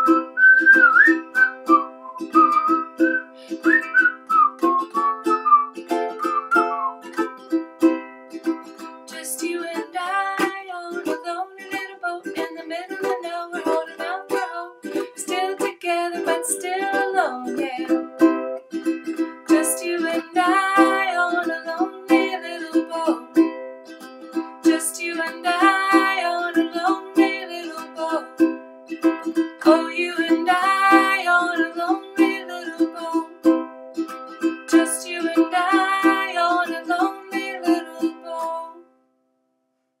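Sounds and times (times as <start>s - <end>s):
ukulele strumming: 0.0s - 38.9s
wordless vocal melody: 29.6s - 33.3s.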